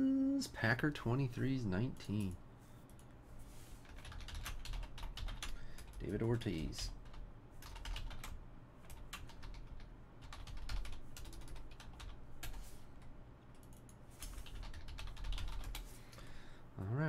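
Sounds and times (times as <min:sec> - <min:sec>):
computer keyboard typing: 0:03.8 - 0:12.7, 0:13.5 - 0:15.9.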